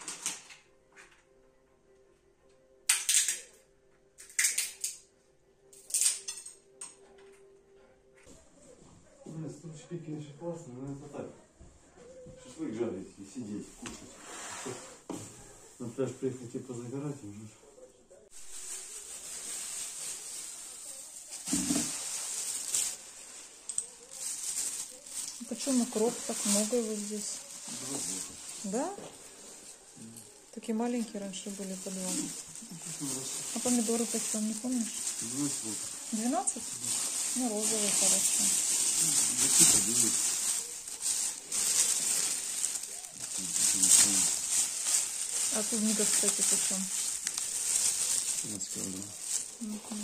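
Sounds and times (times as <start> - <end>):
plastic bags rustling: 0.0 - 0.6, 18.3 - 50.0
nutcracker cracking walnut shells: 2.9 - 3.5, 4.2 - 5.0.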